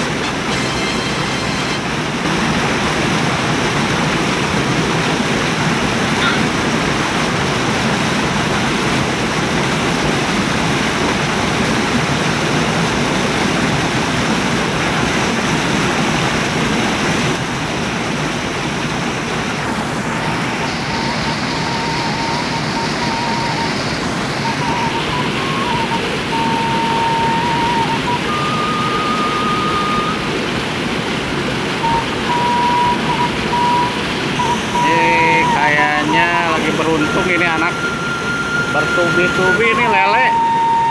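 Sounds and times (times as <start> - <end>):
flowing water rushing: 0.0 - 40.9.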